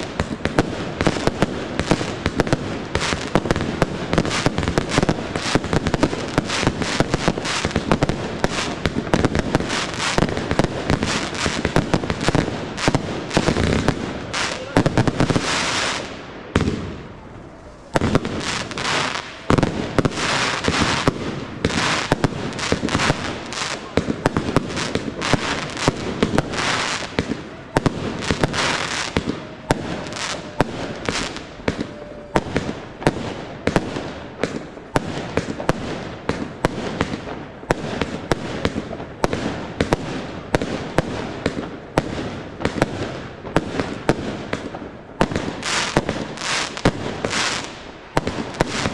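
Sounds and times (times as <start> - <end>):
fireworks launching and bursting: 0.0 - 48.9.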